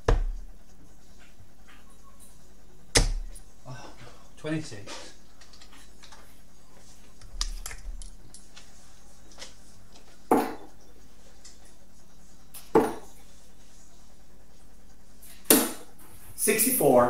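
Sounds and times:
darts thudding into dartboard: 0:00.0 - 0:00.4, 0:02.9 - 0:03.4, 0:10.3 - 0:10.7, 0:12.6 - 0:13.1, 0:15.4 - 0:15.9.

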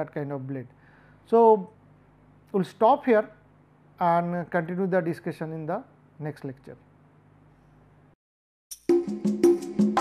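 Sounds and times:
percussive music with pitched notes: 0:08.7 - 0:10.0.

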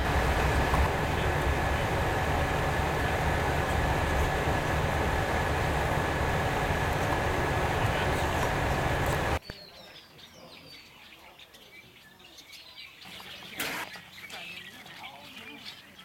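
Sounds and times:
train running noise with ring: 0:00.0 - 0:09.4
small birds chirping: 0:00.0 - 0:16.0.

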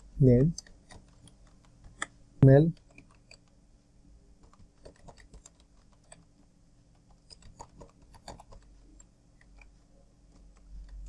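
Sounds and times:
computer keyboard typing: 0:00.5 - 0:02.1, 0:02.7 - 0:03.6, 0:04.4 - 0:06.3, 0:06.9 - 0:11.0.

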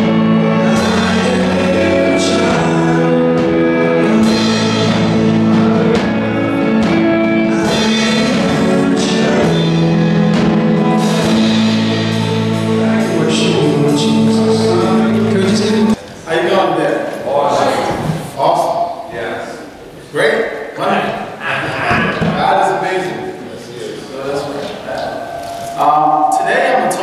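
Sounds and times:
drum kit hits: 0:00.0 - 0:16.0
electric guitar: 0:00.0 - 0:16.0
man singing lead: 0:00.0 - 0:16.0.

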